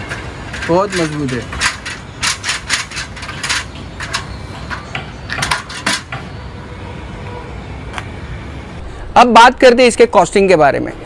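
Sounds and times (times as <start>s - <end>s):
metal fittings clinking: 0.0s - 6.2s.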